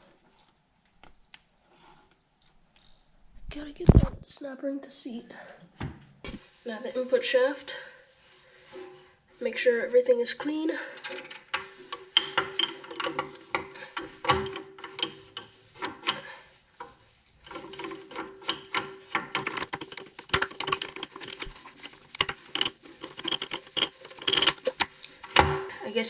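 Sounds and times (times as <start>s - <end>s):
gears clicking and scraping: 17.4s - 25.5s.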